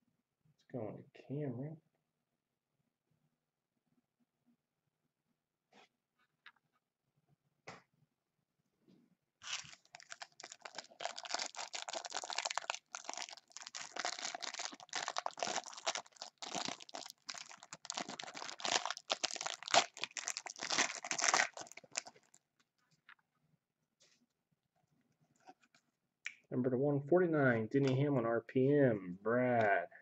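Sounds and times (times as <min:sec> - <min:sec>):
plastic wrapper tearing and crinkling: 0:09.4 - 0:22.4.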